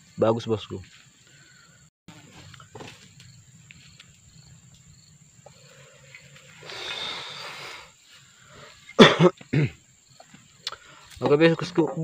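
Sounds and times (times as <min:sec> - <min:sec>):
man exhaling smoke: 0:05.5 - 0:09.0.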